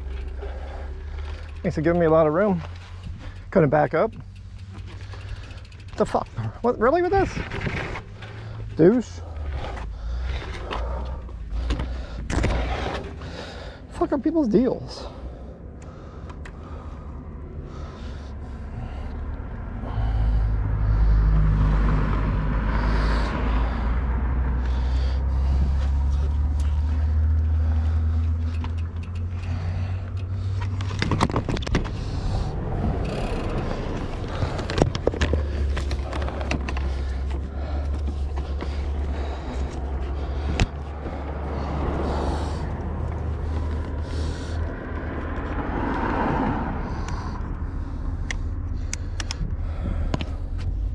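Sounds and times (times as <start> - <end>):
bicycle scraping: 0.0 - 13.8, 29.0 - 44.6
steady low rumble: 0.0 - 50.9.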